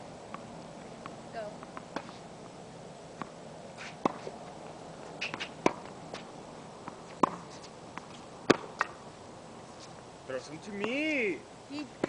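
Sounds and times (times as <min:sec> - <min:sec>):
tennis ball bouncing on hard court: 0:00.3 - 0:02.2, 0:03.2 - 0:04.5, 0:05.1 - 0:09.0, 0:10.7 - 0:11.2
tennis ball hit by rackets: 0:00.3 - 0:02.2, 0:03.2 - 0:04.4, 0:05.2 - 0:09.0.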